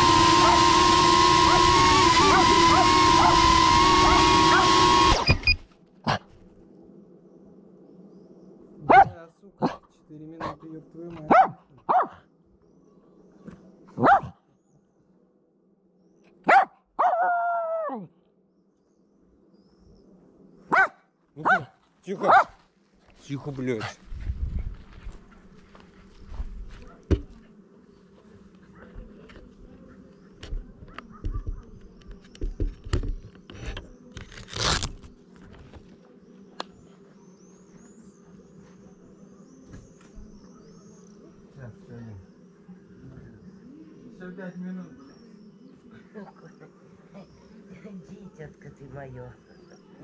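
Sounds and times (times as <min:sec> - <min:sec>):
dog barking: 0:08.8 - 0:10.6, 0:11.2 - 0:12.3, 0:14.0 - 0:14.4, 0:16.4 - 0:17.4, 0:20.7 - 0:22.6, 0:26.8 - 0:27.1, 0:28.7 - 0:29.0, 0:30.8 - 0:31.8
knocks and thumps: 0:27.1 - 0:27.3.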